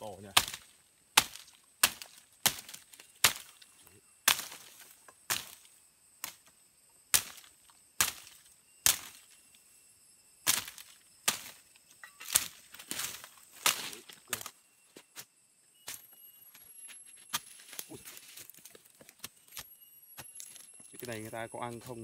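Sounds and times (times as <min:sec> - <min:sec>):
bush knife chopping stems: 0:00.2 - 0:06.5, 0:07.1 - 0:09.4, 0:10.4 - 0:11.6, 0:12.2 - 0:14.6.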